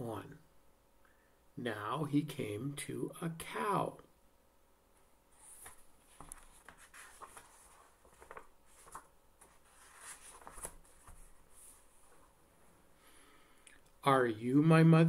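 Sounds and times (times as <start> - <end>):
faint rustling: 5.3 - 12.9.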